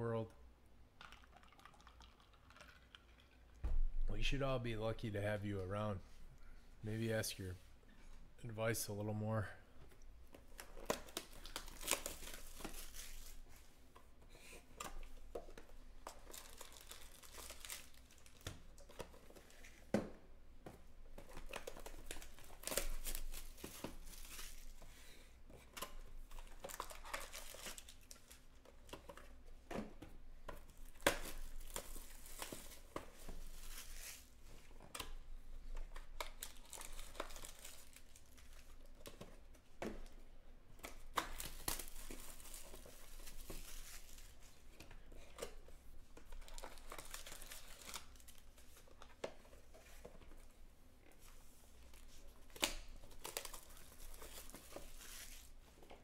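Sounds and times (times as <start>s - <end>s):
foil wrappers crinkling and tearing: 10.5s - 13.5s, 16.0s - 19.8s, 21.4s - 24.8s, 25.9s - 28.6s, 30.7s - 34.4s, 35.9s - 39.2s, 40.8s - 44.7s, 46.2s - 49.1s, 51.8s - 55.6s.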